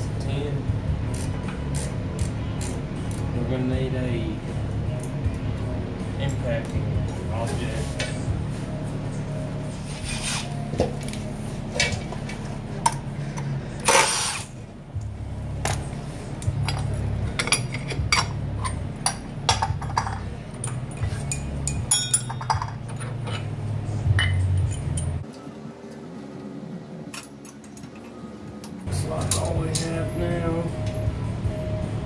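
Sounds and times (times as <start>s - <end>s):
metal hand tools clinking: 16.6s - 23.5s.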